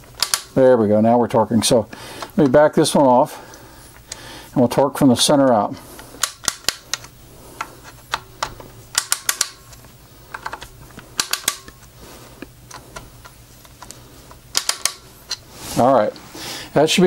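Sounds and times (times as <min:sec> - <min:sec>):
torque screwdriver clicking: 0:14.5 - 0:15.4.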